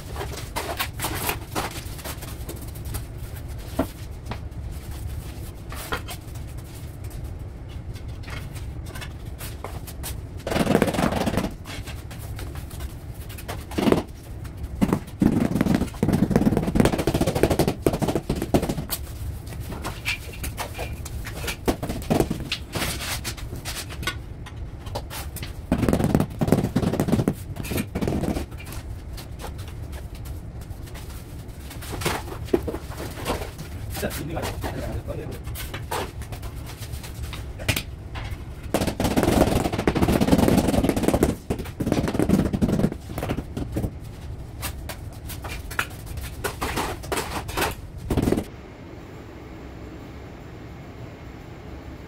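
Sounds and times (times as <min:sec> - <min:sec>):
tiles and mortar scraping: 0:39.1 - 0:48.5.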